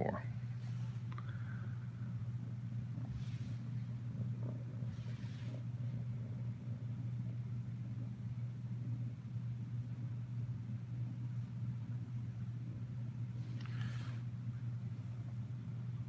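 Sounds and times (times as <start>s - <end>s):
kitten purring: 1.7s - 9.1s.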